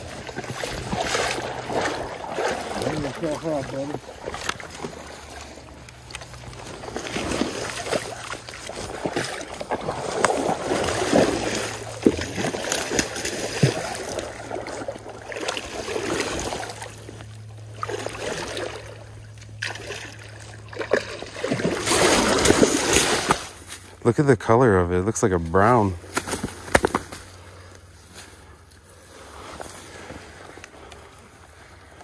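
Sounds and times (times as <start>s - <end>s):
fish thrashing in water: 0.0s - 23.7s
water splashing: 0.0s - 23.7s
wading through water: 0.0s - 24.0s, 27.2s - 32.0s.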